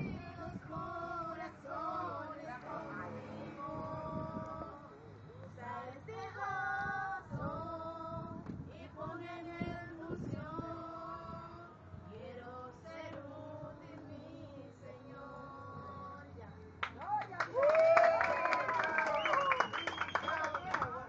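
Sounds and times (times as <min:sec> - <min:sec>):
steady low hum: 0:00.0 - 0:16.8.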